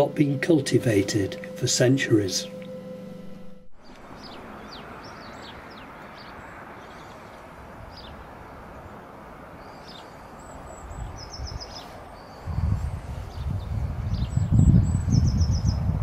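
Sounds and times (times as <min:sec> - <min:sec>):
small birds singing: 0:03.8 - 0:16.0
wind buffeting microphone: 0:10.7 - 0:16.0.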